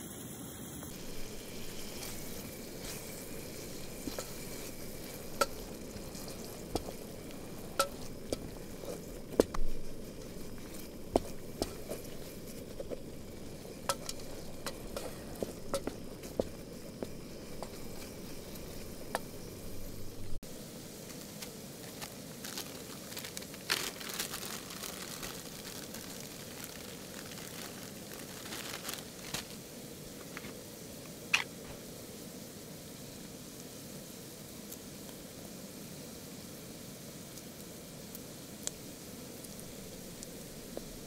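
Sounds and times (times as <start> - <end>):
vegetables sizzling in a pot: 0.0 - 41.0
wooden spoon scraping a pot: 0.9 - 20.3.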